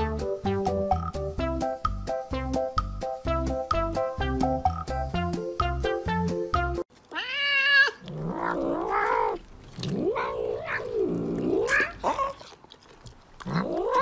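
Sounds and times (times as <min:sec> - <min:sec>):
cat yowling: 0:07.1 - 0:12.4, 0:13.5 - 0:14.0.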